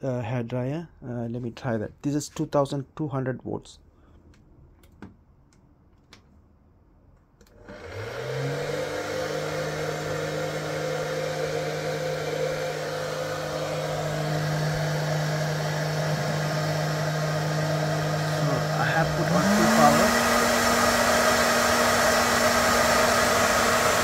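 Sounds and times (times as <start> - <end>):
hair dryer blowing: 7.5 - 24.0.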